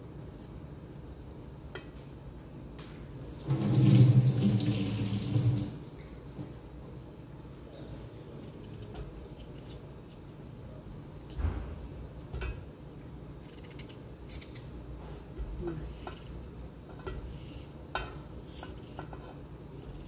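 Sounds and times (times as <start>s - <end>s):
knife scraping potato skin: 13.4s - 17.8s, 18.4s - 20.0s.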